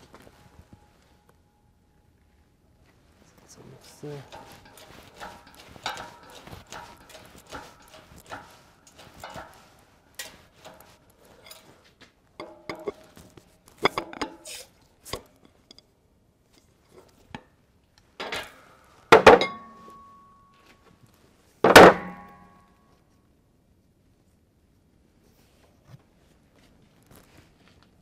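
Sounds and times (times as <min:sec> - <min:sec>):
metal tool clanking on wheel hub: 0:04.1 - 0:11.8, 0:12.4 - 0:14.6, 0:18.2 - 0:20.4.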